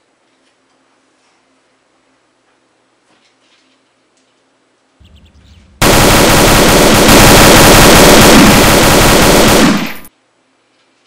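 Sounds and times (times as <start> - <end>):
automatic rifle gunfire: 5.8 - 10.1.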